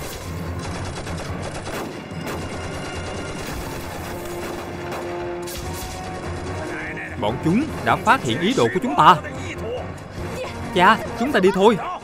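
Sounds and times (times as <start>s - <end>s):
gunshots: 0.0s - 8.0s
film score: 0.0s - 12.0s.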